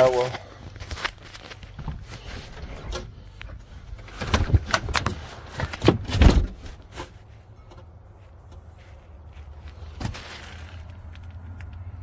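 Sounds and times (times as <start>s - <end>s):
footsteps: 6.5s - 11.5s.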